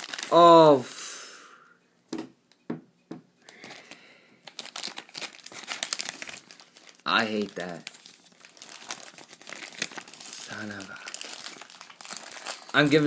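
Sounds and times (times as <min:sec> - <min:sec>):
foil packet crinkling: 0:00.0 - 0:00.6, 0:03.5 - 0:13.0.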